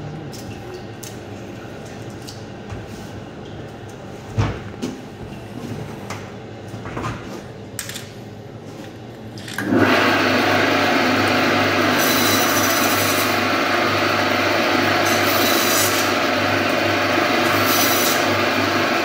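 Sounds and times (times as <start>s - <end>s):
band saw motor humming: 9.6s - 19.0s
saw blade rasping through fish: 15.0s - 16.1s, 17.5s - 18.4s.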